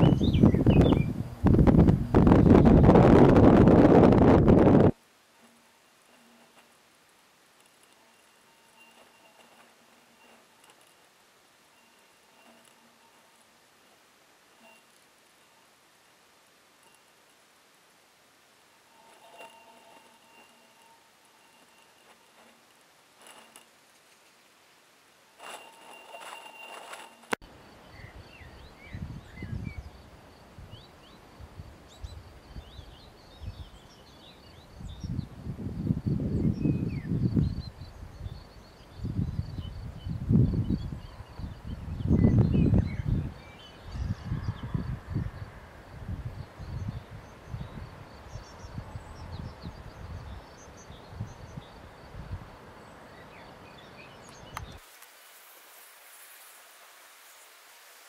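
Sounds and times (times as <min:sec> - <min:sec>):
small birds chirping: 0:00.0 - 0:01.3, 0:52.8 - 0:54.8
songbirds chirping: 0:00.0 - 0:03.1, 0:05.2 - 0:54.8
wind buffeting microphone: 0:00.0 - 0:05.0, 0:34.5 - 0:52.6
faint steady hiss: 0:00.0 - 0:36.3, 0:45.1 - 0:58.0.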